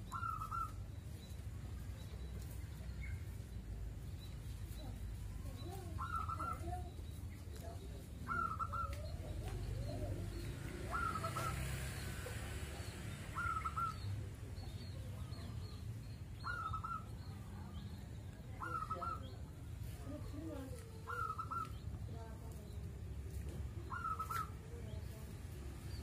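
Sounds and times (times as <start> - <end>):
dove cooing: 5.7 - 7.0, 8.2 - 12.4, 13.3 - 14.0, 21.0 - 21.8, 23.8 - 24.6.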